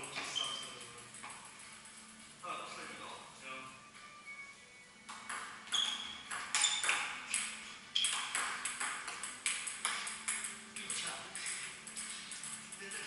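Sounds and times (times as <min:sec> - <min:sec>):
table tennis ball clicking: 0:05.1 - 0:13.0.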